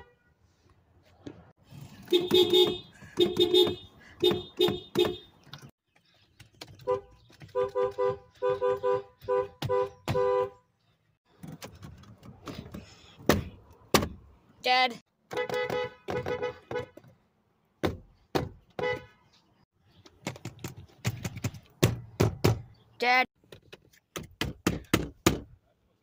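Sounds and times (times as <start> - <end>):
car horn tooting: 0.0 - 0.3, 2.0 - 5.4, 6.8 - 10.6, 15.3 - 17.0, 18.8 - 19.3.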